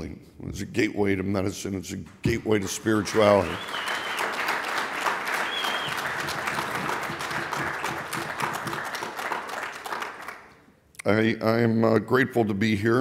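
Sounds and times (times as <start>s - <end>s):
audience applauding: 2.6s - 10.6s.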